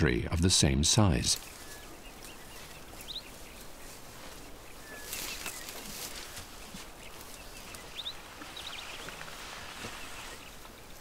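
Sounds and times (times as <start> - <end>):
leafy branches rustling and crackling: 1.2 - 11.0
bird chirps: 1.4 - 5.9, 6.5 - 10.7.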